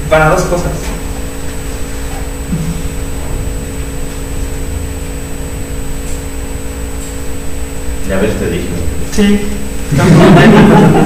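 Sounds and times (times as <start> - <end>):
electrical hum: 0.0 - 11.0
low rumble: 2.3 - 6.8.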